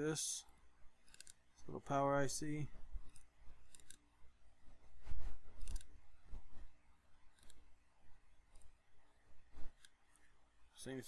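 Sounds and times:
probe tips clicking on circuit board: 0:03.1 - 0:04.0, 0:05.6 - 0:05.9.

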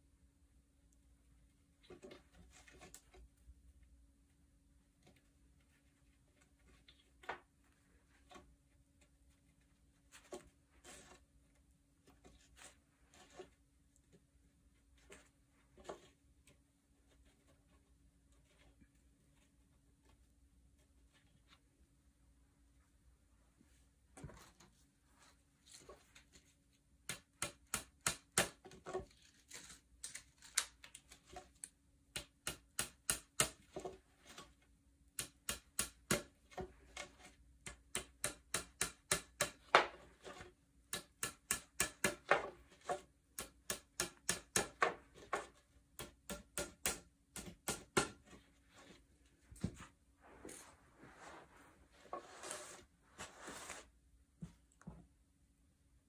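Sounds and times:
hammer tapping wooden dowels: 0:27.0 - 0:28.8, 0:32.0 - 0:34.0, 0:35.1 - 0:40.0, 0:40.8 - 0:48.4.

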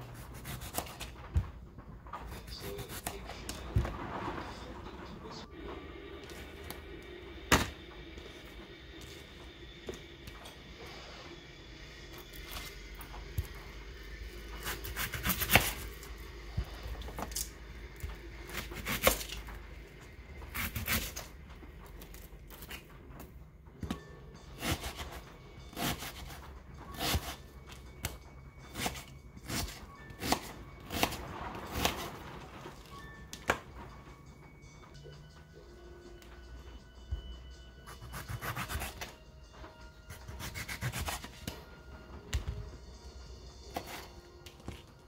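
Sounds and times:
knife chopping onion: 0:00.0 - 0:01.1, 0:02.3 - 0:03.6, 0:14.6 - 0:16.0, 0:18.4 - 0:19.4, 0:20.5 - 0:21.3, 0:24.6 - 0:27.4, 0:28.7 - 0:32.1, 0:37.9 - 0:39.1, 0:40.1 - 0:41.6
quiet background music: 0:00.0 - 0:45.0.

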